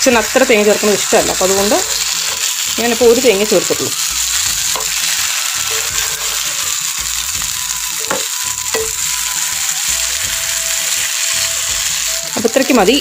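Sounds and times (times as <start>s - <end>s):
curry sizzling in a pan: 0.0s - 13.0s
spatula scraping a pan: 1.4s - 2.7s, 4.2s - 7.5s.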